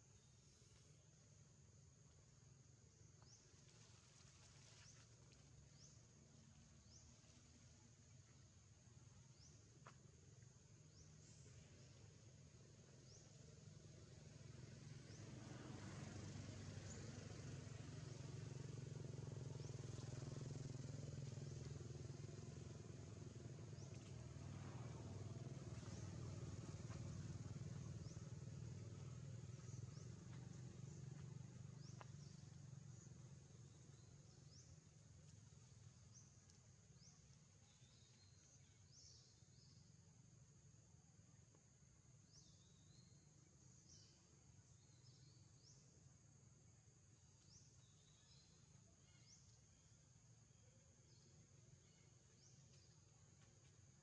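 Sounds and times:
distant motor vehicle hum: 3.1 - 40.4.

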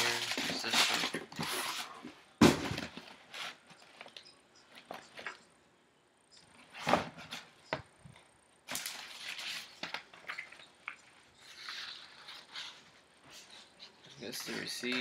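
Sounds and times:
cardboard box set down: 6.7 - 7.5
paper rustling: 8.7 - 15.0.

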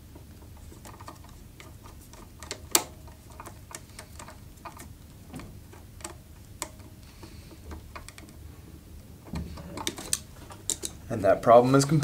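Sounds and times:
screwdriver clicking and scraping: 0.5 - 4.9, 9.5 - 11.0.

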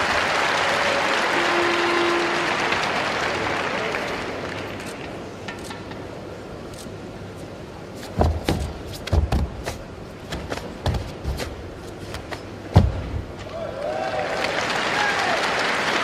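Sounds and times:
bare feet stamping on mat: 8.0 - 13.3.

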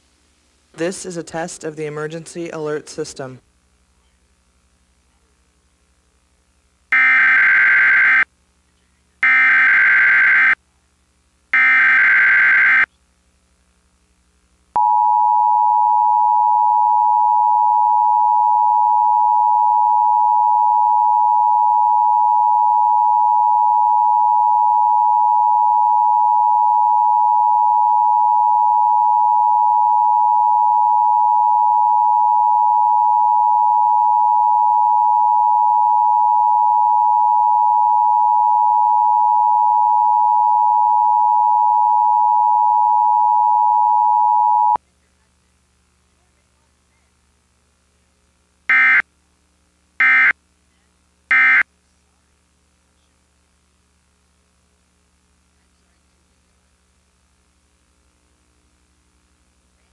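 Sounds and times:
steady alert tone: 48.7 - 49.0.

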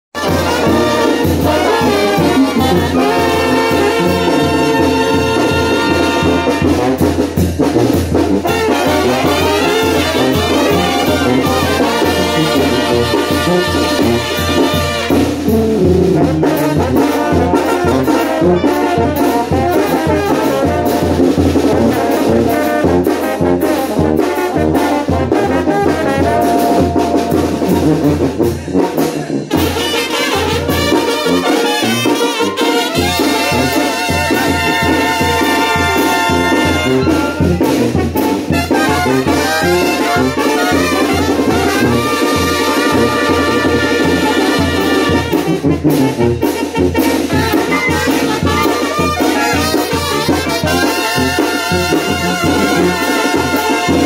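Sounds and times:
brass band playing: 0.1 - 54.0
steady bass beat: 25.9 - 29.4.

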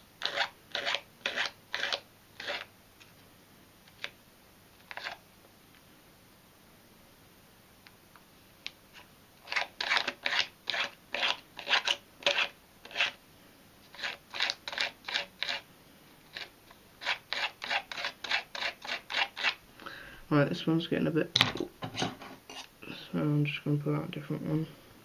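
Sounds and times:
hand file rasping on wood: 0.2 - 2.7, 9.5 - 13.2, 13.9 - 15.6, 16.3 - 19.6.

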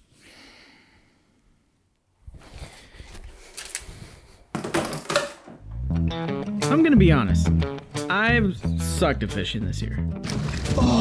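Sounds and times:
shuffling and handling noises: 2.2 - 5.5
rod clattering into plastic bin: 4.6 - 5.6.

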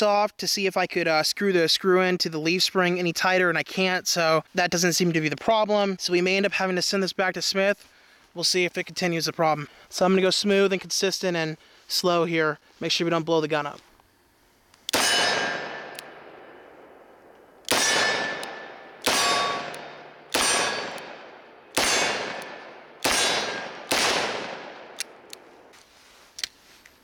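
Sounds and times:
revolver shots echoing: 17.7 - 25.3.

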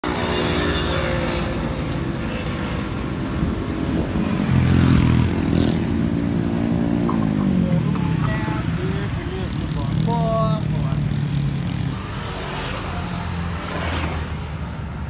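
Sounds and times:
car engines passing: 0.0 - 15.0
motorbike engines passing: 0.0 - 15.0.

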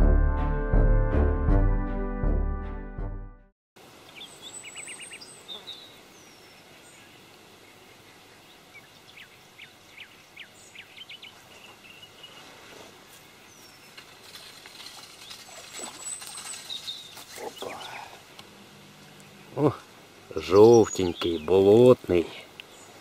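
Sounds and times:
small birds chirping: 4.0 - 23.0
reeds rustling: 11.4 - 20.1
water splashing: 14.1 - 17.8.

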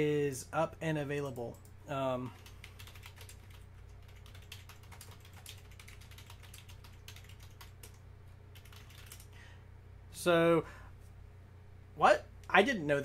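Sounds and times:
faint low hum: 0.0 - 13.0
keyboard typing clicks: 2.4 - 8.0, 8.6 - 9.3.

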